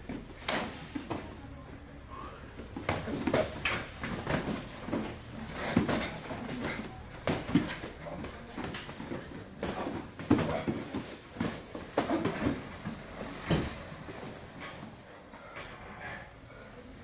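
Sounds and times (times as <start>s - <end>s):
hard exhalations: 2.0s - 3.4s.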